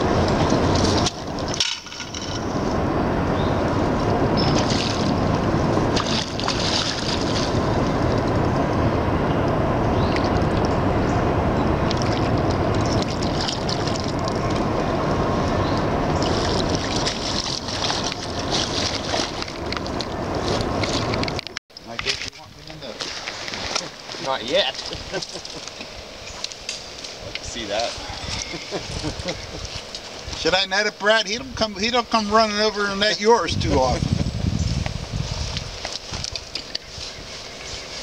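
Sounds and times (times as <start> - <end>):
loud steady rushing noise: 0.0 - 21.6
fish splashing at the surface: 4.5 - 5.3, 5.9 - 8.2, 11.9 - 14.6, 16.2 - 21.2.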